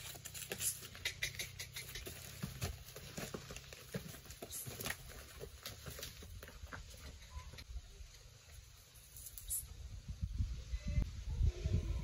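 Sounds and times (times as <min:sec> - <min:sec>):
horse hooves on dirt: 0:00.0 - 0:07.7
footsteps on dry dirt: 0:02.0 - 0:07.2.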